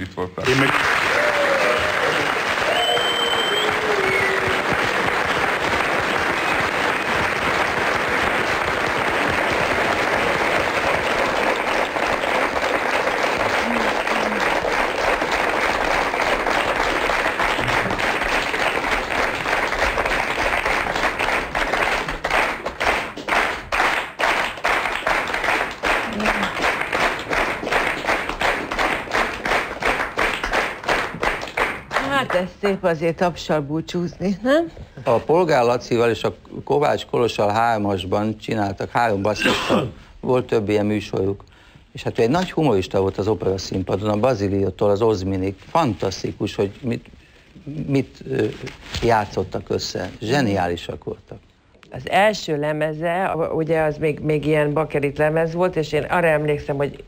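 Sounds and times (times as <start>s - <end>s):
audience applauding: 0.4s - 32.5s
rhythmic clapping in unison: 0.5s - 32.7s.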